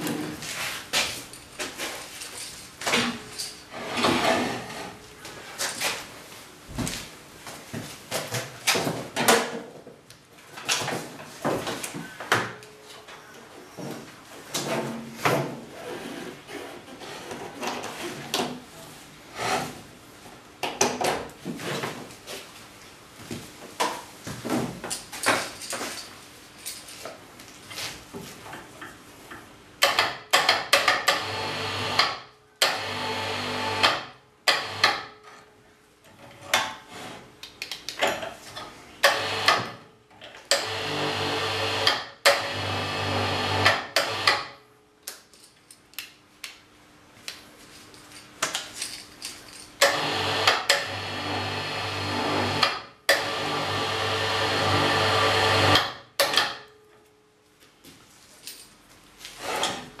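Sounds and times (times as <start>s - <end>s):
hoist motor winding cable: 39.0s - 39.6s, 40.5s - 44.5s, 49.8s - 55.9s.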